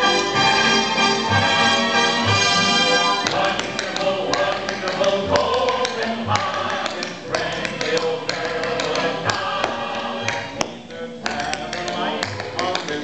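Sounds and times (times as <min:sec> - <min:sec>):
waltz music: 0:00.0 - 0:13.0
tap shoes on hardwood floor: 0:03.2 - 0:13.0.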